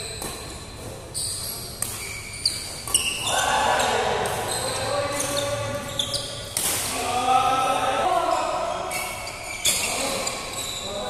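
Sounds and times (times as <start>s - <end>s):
racket hitting shuttlecock: 0.0s - 4.6s, 5.2s - 7.0s.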